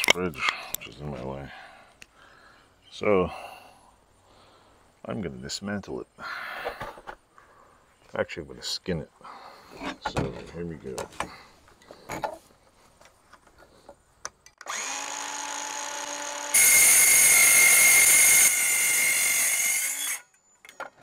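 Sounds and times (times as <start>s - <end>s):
circular saw cutting sheet metal: 16.0s - 20.3s.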